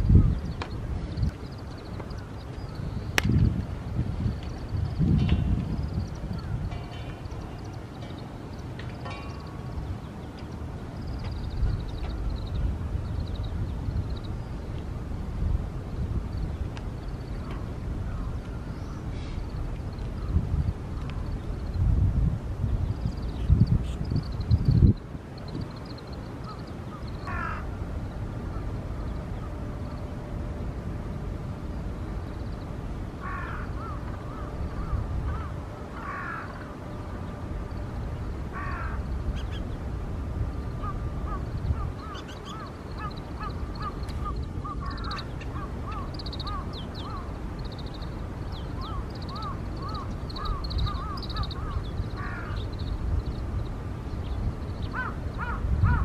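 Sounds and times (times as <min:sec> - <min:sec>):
bird trilling: 0:40.8 - 0:52.8
bird chirping: 0:42.0 - 0:53.4.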